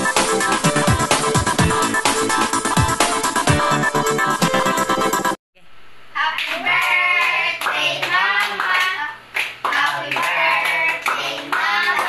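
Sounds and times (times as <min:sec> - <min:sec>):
hands clapping in rhythm: 0:06.4 - 0:12.0.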